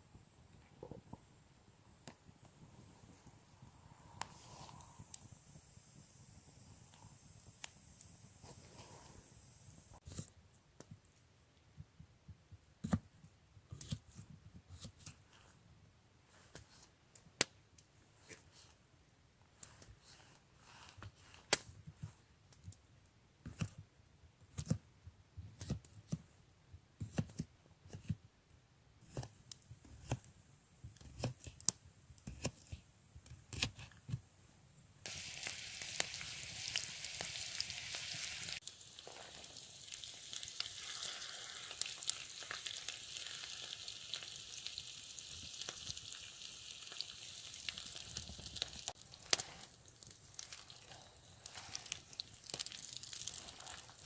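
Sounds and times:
potatoes sizzling in frying pan: 35.1s - 54.0s.

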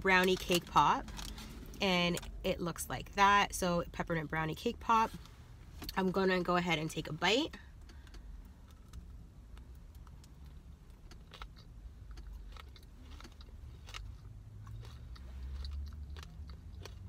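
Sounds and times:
low car rumble: 0.0s - 17.0s
mouth chewing and crunching: 7.7s - 17.0s.

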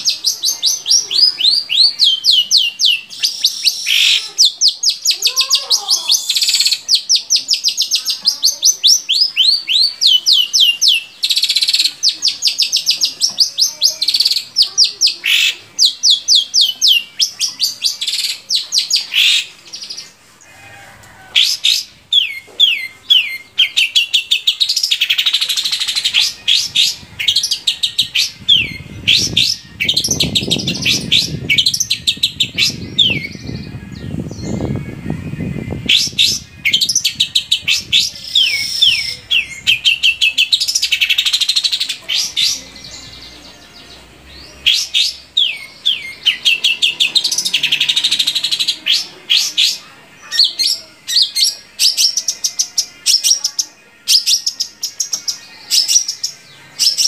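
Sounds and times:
harsh scratchy bird notes: 9.0s - 53.4s
shrike singing sharp chirps: 44.0s - 52.5s.

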